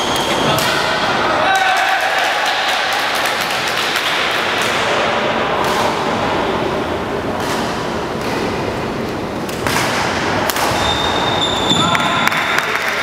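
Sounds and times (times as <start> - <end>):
gymnasium hall noise: 0.0 - 13.0
racket hitting shuttlecock: 7.3 - 8.8.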